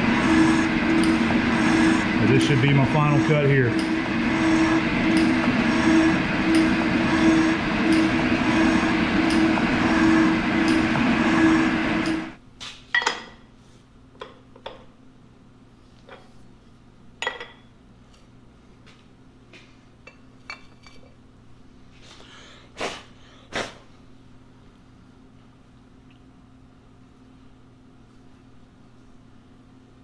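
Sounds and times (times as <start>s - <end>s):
metal shaper machine drone: 0.0s - 12.4s.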